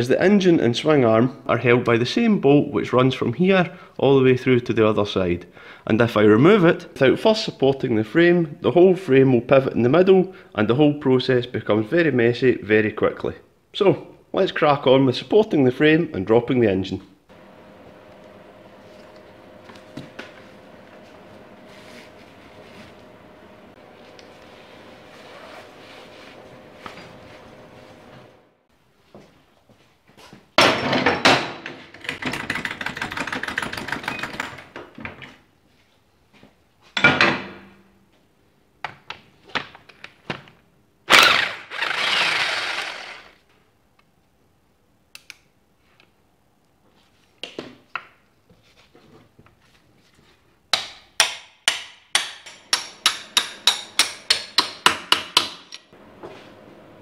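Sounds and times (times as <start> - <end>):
wrench working on bolt: 41.1 - 43.4.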